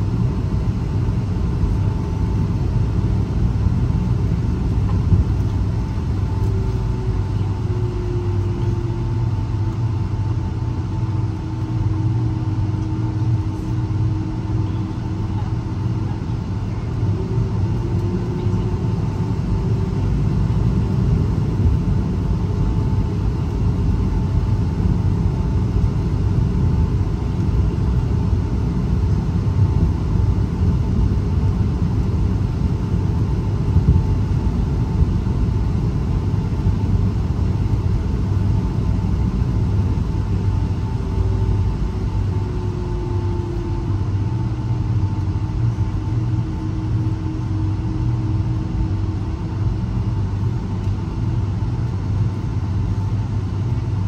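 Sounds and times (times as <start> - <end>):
faint hum: 0.0 - 54.0
jet engines rumbling in cabin: 0.0 - 54.0.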